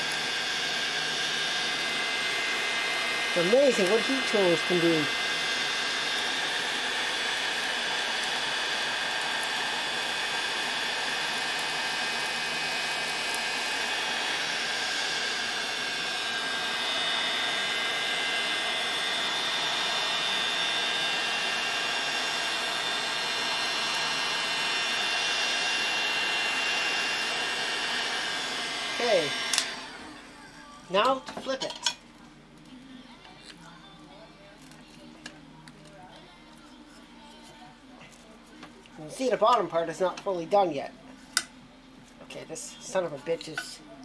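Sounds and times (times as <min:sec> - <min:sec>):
heat gun blowing with whine: 0:00.0 - 0:31.5.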